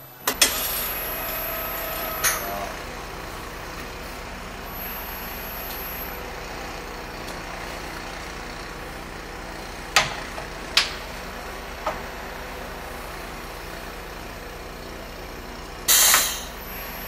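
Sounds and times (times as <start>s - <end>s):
drill machine mechanical hum: 0.0s - 17.0s
sharp mechanical clunks: 0.2s - 1.1s, 15.9s - 16.5s.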